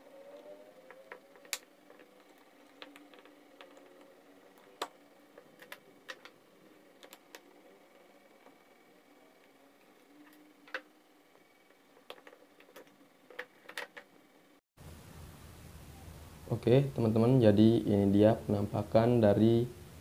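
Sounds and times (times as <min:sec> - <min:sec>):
plastic parts clicking: 0:00.3 - 0:07.6.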